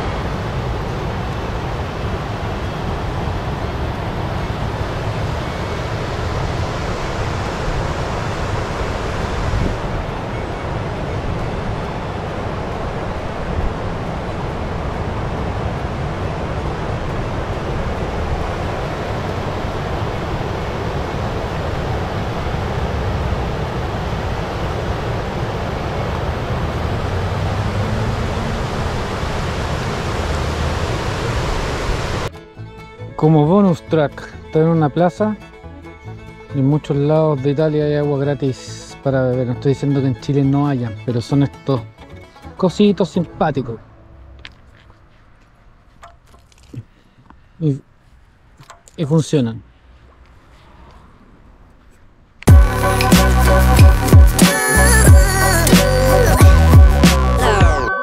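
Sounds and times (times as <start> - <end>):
river rushing over rapids: 0.0 - 32.3
wind buffeting microphone: 0.0 - 32.3
faint low drone: 0.0 - 33.2.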